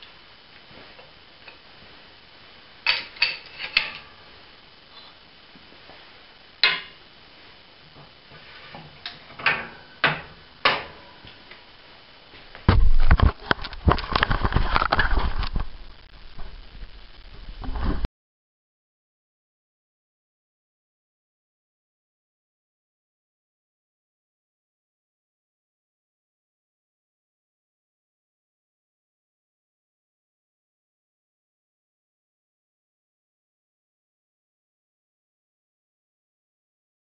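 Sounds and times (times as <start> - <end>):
metal clanks and clicks: 2.9 - 4.1, 9.0 - 11.0
camera handling rumble: 12.7 - 15.8.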